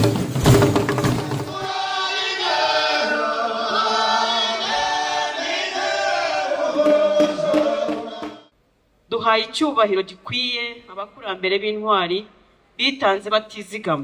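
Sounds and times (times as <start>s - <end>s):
choir singing unaccompanied: 1.4s - 8.5s.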